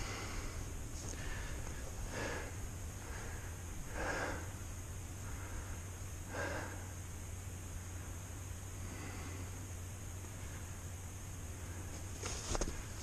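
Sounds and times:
person breathing: 0:00.0 - 0:07.1, 0:08.8 - 0:10.9
steady low hum: 0:00.0 - 0:13.0.

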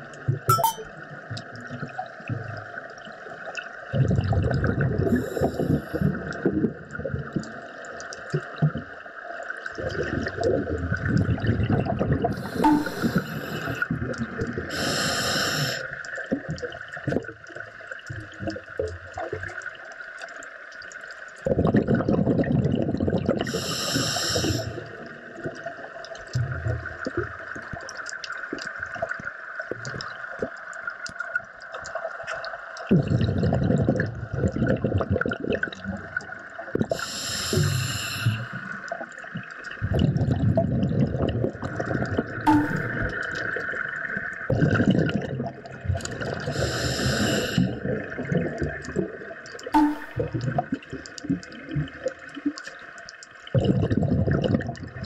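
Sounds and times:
underwater water surging: 0:01.6 - 0:19.4, 0:21.6 - 0:55.0
crackle of small clicks: 0:05.8 - 0:11.7, 0:15.9 - 0:21.6, 0:25.4 - 0:32.9, 0:45.4 - 0:46.4, 0:48.1 - 0:54.9.

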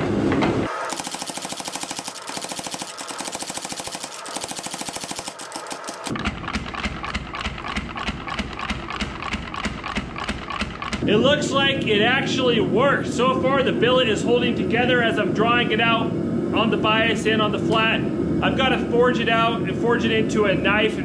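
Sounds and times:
power hammer pounding metal: 0:00.7 - 0:11.1.

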